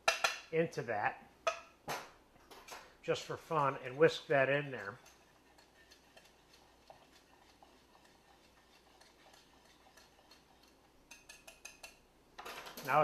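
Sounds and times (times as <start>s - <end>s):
metal whisk ticking in saucepan: 3.5s - 12.0s.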